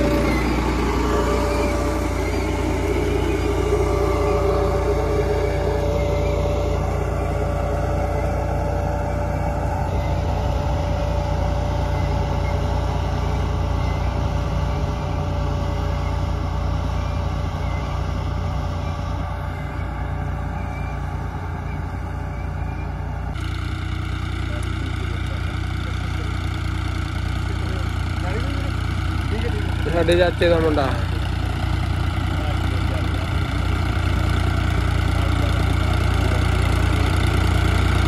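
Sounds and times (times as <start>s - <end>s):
steady tone: 0.0s - 26.2s
tractor diesel engine running: 0.0s - 38.0s.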